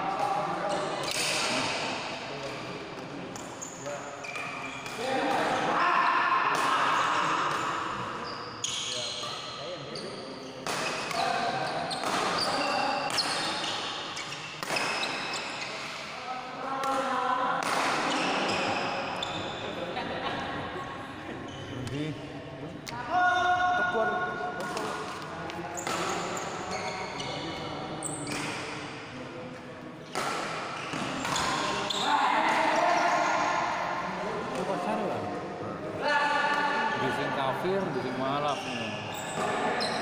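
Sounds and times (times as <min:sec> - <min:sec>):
shoe squeaks on court floor: 0:03.4 - 0:04.9, 0:08.2 - 0:16.0, 0:18.1 - 0:19.7, 0:25.7 - 0:28.8, 0:30.0 - 0:32.2, 0:38.4 - 0:40.0.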